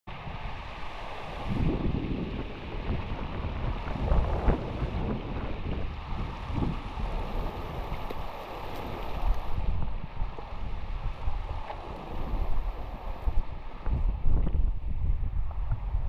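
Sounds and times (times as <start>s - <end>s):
wind gusting on microphone: 0.1s - 16.0s
stream running over rocks: 1.2s - 10.7s, 11.3s - 14.6s.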